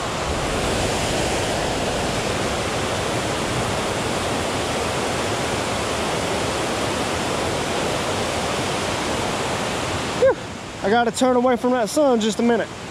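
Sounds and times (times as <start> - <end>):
water rushing over spillway: 0.0 - 12.9.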